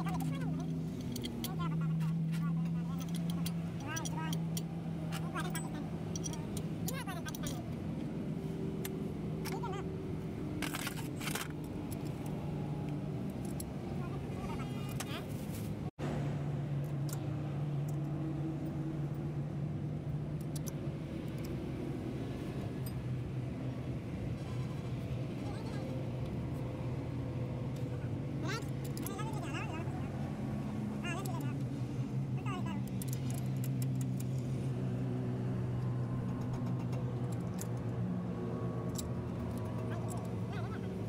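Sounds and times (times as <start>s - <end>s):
engine running with low hum: 0.0s - 41.0s
socket wrench clicking on nuts: 3.0s - 7.6s, 20.4s - 21.6s, 32.8s - 34.5s, 35.8s - 37.9s.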